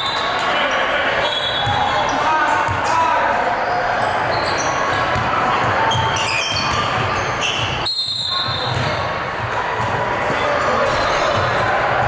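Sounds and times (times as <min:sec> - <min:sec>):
shoe squeaks: 0:03.6 - 0:05.1, 0:05.9 - 0:08.8.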